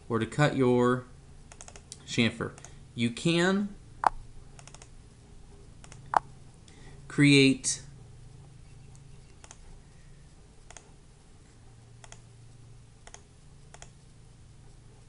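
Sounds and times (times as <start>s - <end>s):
faint low hum: 0.0s - 15.0s
computer mouse clicks: 1.5s - 2.0s, 4.0s - 4.9s, 5.8s - 6.2s, 8.9s - 9.7s, 10.7s - 10.9s, 12.0s - 12.3s, 13.0s - 14.0s.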